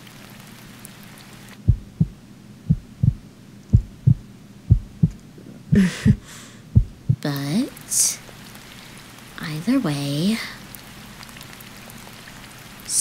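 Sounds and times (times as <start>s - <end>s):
rain falling: 0.0s - 2.2s, 3.8s - 13.0s
heartbeat double thumps: 1.7s - 7.3s.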